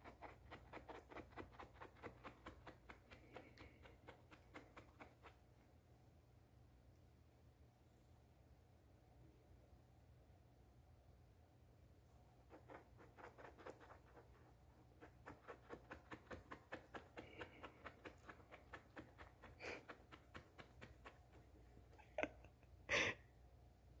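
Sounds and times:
fingers scratching cat fur: 0.0s - 5.6s, 12.4s - 22.4s.

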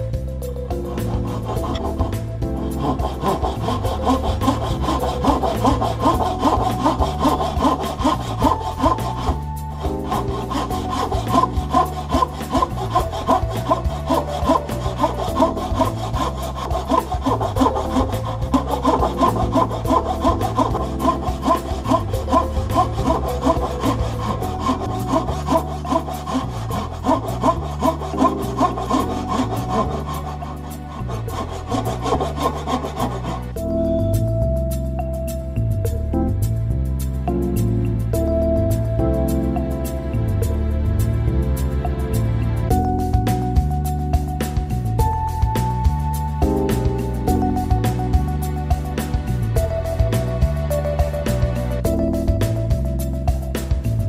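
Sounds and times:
pull saw cutting wood: 0.7s - 33.8s.

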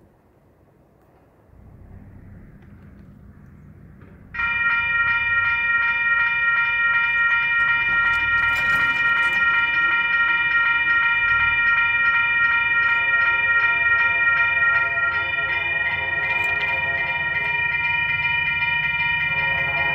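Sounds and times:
low tone: 1.3s - 19.9s
railroad crossing bell ringing: 4.0s - 19.9s.

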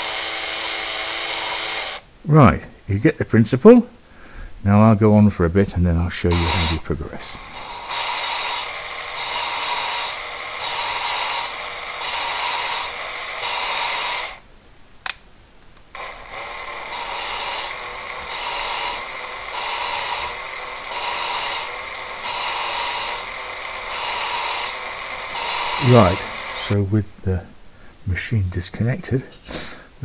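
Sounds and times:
valve grinding rhythmic scraping: 6.3s - 14.4s, 15.9s - 26.8s
click: 15.0s - 15.2s.

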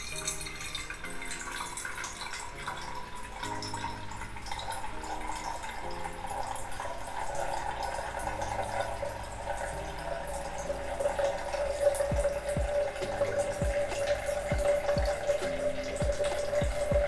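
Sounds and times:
background music: 0.0s - 17.0s
liquid trickling between beakers: 0.0s - 17.0s
low drum beats: 12.1s - 12.8s, 13.6s - 15.2s, 16.0s - 17.0s.

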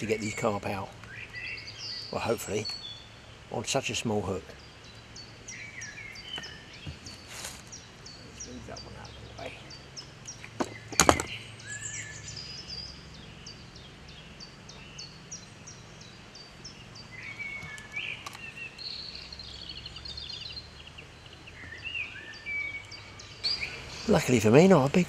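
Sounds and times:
low outdoor rumble: 0.0s - 25.0s
songbirds singing: 0.0s - 25.0s
sharp knocks: 10.6s - 11.4s.

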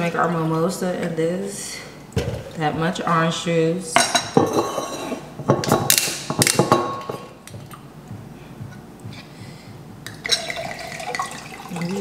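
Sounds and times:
glasses and bottles clinking: 10.1s - 11.9s.

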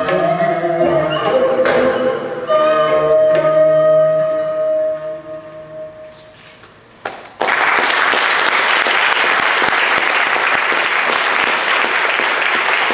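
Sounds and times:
audience applause: 7.4s - 12.9s.

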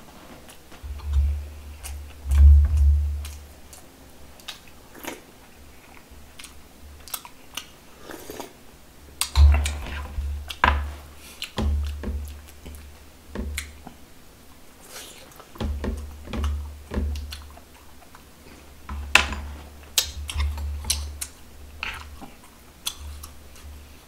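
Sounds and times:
person chewing food: 0.4s - 8.6s, 9.2s - 14.0s, 14.8s - 24.0s.

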